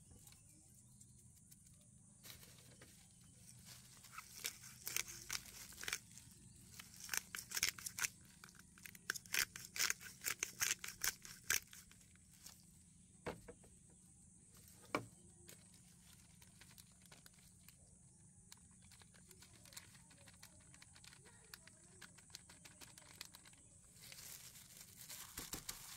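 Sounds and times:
spice grinder clicking: 0:06.8 - 0:11.9.

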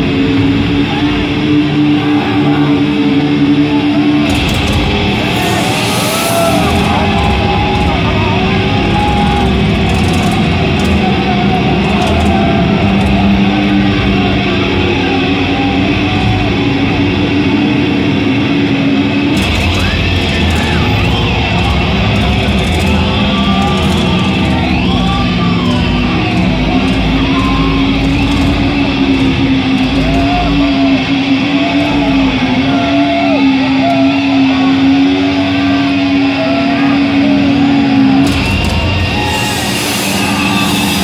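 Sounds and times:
crowd shouting and cheering: 0:00.0 - 0:41.0
distorted guitar chords: 0:00.0 - 0:41.0.

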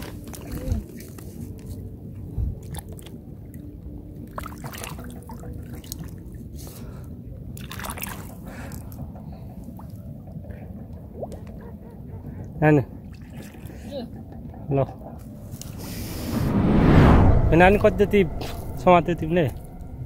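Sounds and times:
shallow water sloshing and splashing: 0:00.0 - 0:15.6.

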